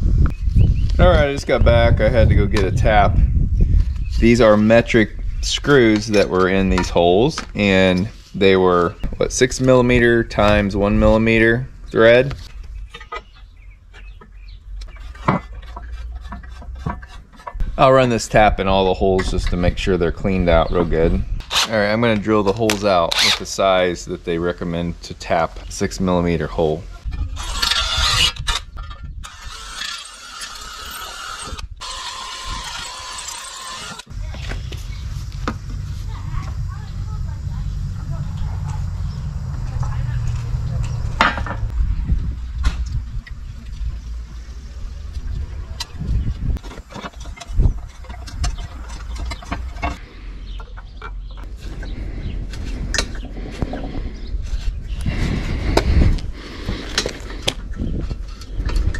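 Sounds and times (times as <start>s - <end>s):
cordless drill drilling metal: 27.4s - 28.6s, 29.2s - 34.1s
steady low rumble: 34.1s - 58.9s
small metal clicks and scrapes: 46.6s - 50.0s.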